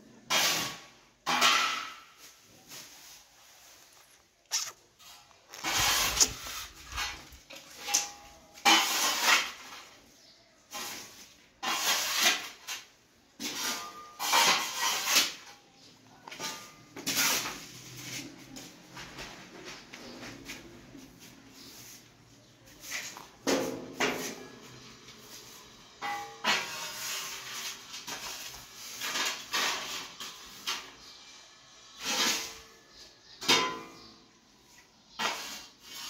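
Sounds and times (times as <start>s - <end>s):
short rubbing noises: 2.8s - 7.4s.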